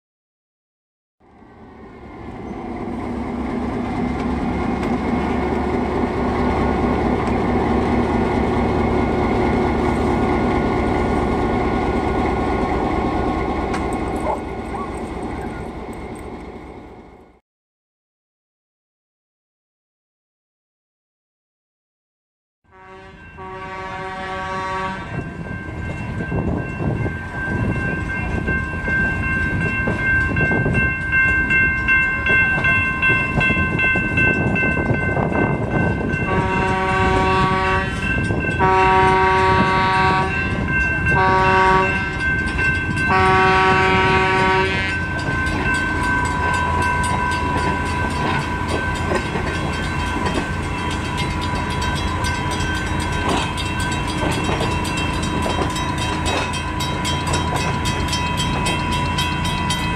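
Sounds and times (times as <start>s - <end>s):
train rumbling: 1.2s - 17.4s, 22.7s - 59.9s
train horn blasts: 22.7s - 25.4s, 36.2s - 42.3s, 43.0s - 45.1s.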